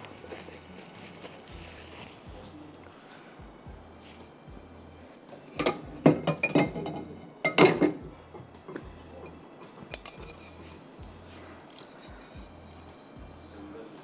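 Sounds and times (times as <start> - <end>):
kitchenware clattering and clinking: 5.5 - 13.0.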